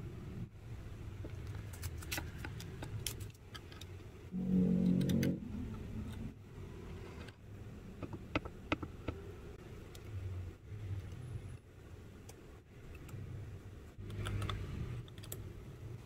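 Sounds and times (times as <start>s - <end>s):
low hum: 4.2s - 8.0s.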